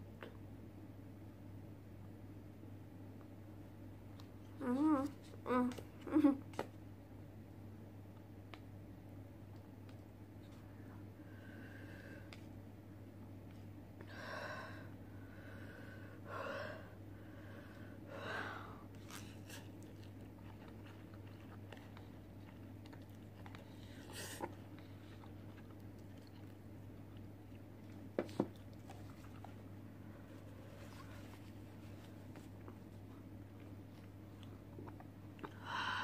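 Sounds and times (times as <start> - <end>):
chewing with mouth clicks: 19.0 - 29.7, 32.2 - 35.6.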